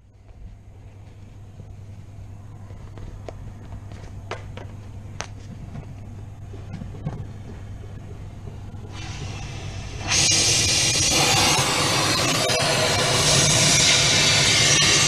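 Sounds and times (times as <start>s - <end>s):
fume extraction hum: 0.0s - 15.0s
gas torch flame hissing: 8.9s - 15.0s.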